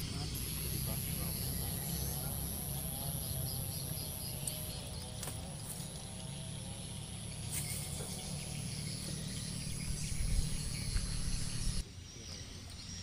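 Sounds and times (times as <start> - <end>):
high insect whine: 0.0 - 13.0
insects buzzing: 0.0 - 13.0
low wind rumble on microphone: 9.5 - 11.8.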